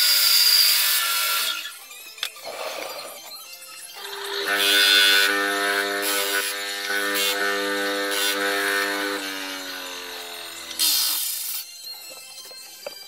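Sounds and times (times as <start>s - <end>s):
electric disc sander running: 4.0s - 11.5s.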